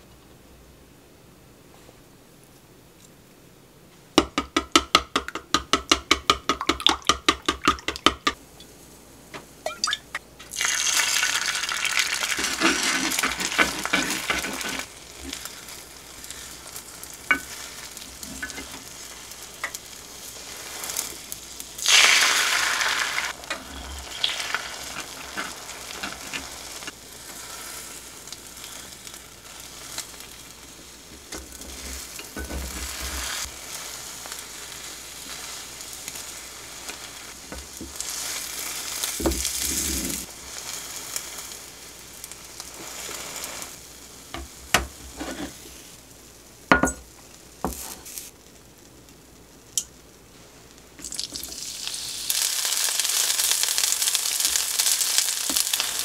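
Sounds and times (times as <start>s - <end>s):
chopsticks and spatula tapping pan: 4.2s - 8.4s, 17.3s - 17.6s, 18.3s - 18.8s
eggs beaten in wooden bowl: 4.2s - 8.4s
egg sizzling in hot pan: 9.6s - 56.0s.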